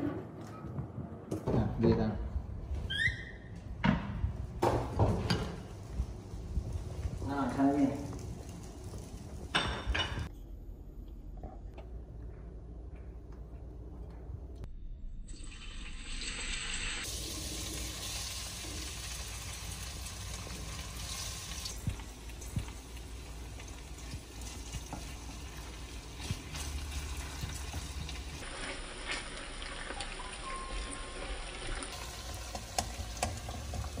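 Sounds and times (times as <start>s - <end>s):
steady frying hiss: 4.6s - 10.3s, 16.0s - 29.9s, 31.4s - 34.0s.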